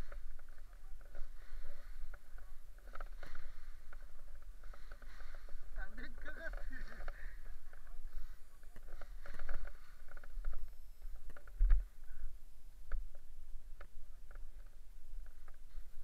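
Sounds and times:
knocks and rustling of fabric: 0:00.0 - 0:12.0
wind rumbling on microphone: 0:00.0 - 0:16.0.

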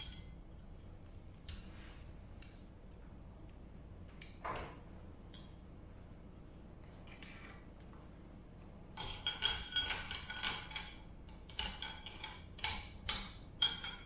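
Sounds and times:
snap ring clinking on metal: 0:00.0 - 0:01.7.

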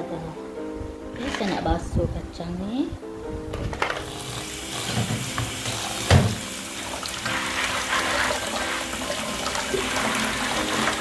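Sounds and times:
tap water splashing: 0:03.8 - 0:11.0
thump: 0:06.1 - 0:06.4.

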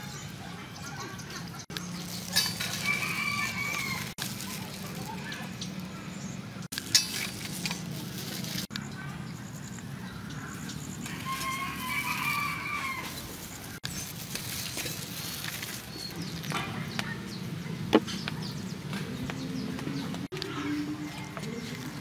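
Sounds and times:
rooster crowing: 0:02.7 - 0:04.1, 0:11.0 - 0:13.3.

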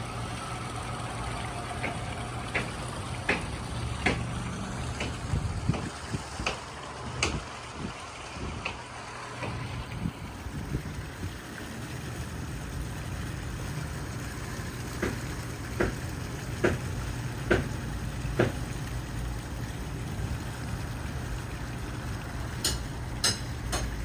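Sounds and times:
underwater engine hum: 0:00.0 - 0:24.0
underwater knocks: 0:01.8 - 0:04.3, 0:04.9 - 0:06.6, 0:07.2 - 0:07.4, 0:16.6 - 0:18.6.

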